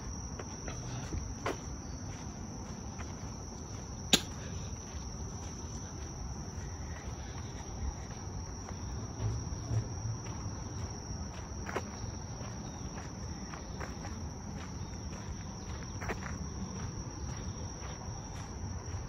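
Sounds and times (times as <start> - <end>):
insects trilling: 0.0 - 19.0
soft footfalls: 0.4 - 5.6
sharp loud click: 4.1 - 4.3.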